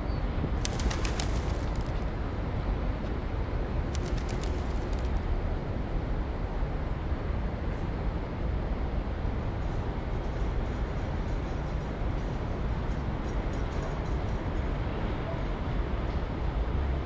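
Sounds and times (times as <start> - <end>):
rapid sharp clicks: 0.6 - 2.1, 3.9 - 5.3.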